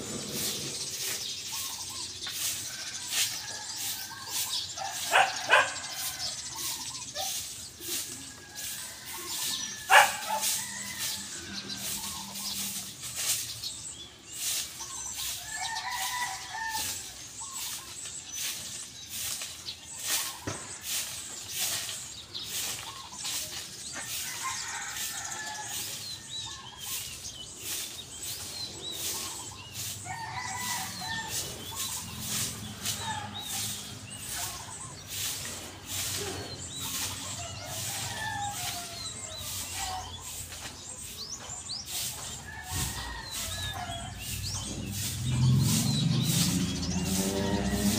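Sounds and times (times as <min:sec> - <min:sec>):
broom sweeping gravel: 0:00.0 - 0:47.9
chickens clucking: 0:00.0 - 0:47.9
rooster crowing: 0:30.0 - 0:33.8, 0:37.4 - 0:40.1, 0:42.5 - 0:47.9.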